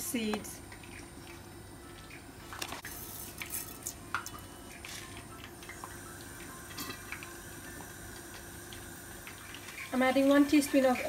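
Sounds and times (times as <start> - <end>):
seeds sizzling in hot oil: 5.7 - 11.0.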